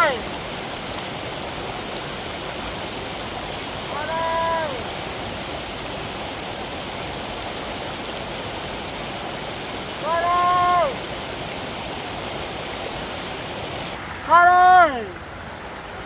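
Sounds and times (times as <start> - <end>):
rushing stream water: 0.0 - 16.0
long high call: 3.8 - 5.0, 9.9 - 11.1, 14.2 - 15.2.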